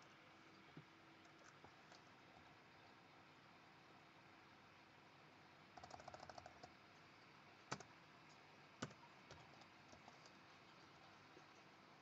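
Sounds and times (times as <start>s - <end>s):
computer keyboard typing: 5.8s - 6.7s, 7.7s - 7.9s, 8.8s - 10.4s.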